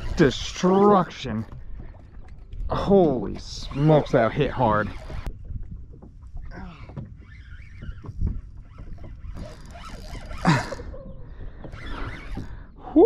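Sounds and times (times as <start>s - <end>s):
wind and water rumble: 0.0s - 13.0s
fishing rod and reel clicks: 7.3s - 10.8s.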